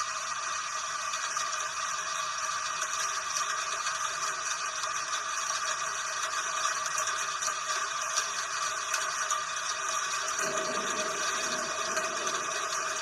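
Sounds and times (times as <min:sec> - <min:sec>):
steady rain hiss: 0:10.2 - 0:13.0.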